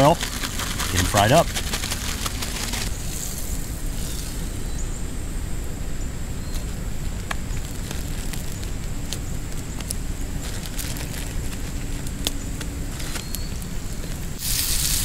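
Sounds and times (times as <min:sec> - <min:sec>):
campfire burning with pops: 0:06.4 - 0:15.0
food frying in butter: 0:14.4 - 0:15.0.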